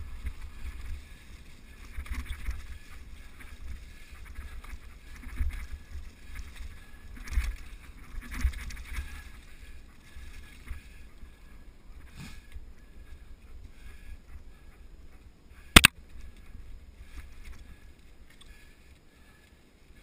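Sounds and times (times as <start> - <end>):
bike rattling over bumps: 0.0 - 11.1
bike tyres on dry leaves: 0.0 - 12.6.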